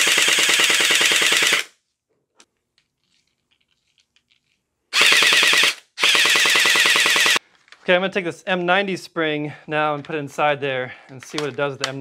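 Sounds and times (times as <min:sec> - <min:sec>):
gel blaster firing full auto: 0:00.0 - 0:01.7, 0:05.0 - 0:07.4.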